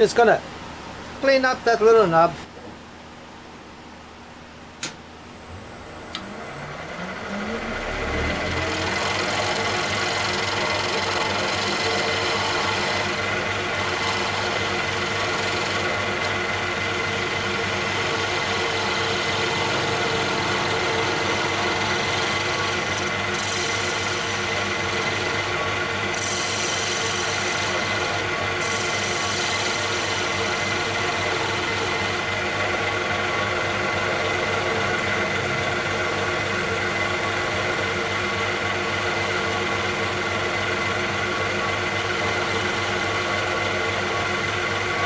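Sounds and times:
wood lathe running: 5.5s - 45.0s
turning tool cutting wood: 6.1s - 34.9s
turning tool scraping wood: 8.8s - 13.2s, 13.8s - 16.4s.

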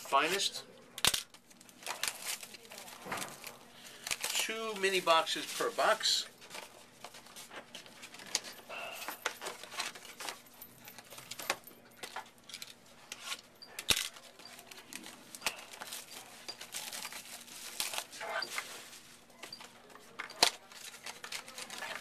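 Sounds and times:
packaging crinkling and tearing: 1.0s - 8.4s, 14.1s - 19.3s, 20.0s - 22.0s.

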